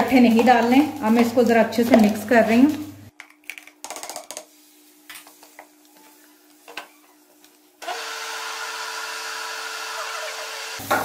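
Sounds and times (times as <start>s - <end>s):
blender motor running: 7.8s - 10.8s.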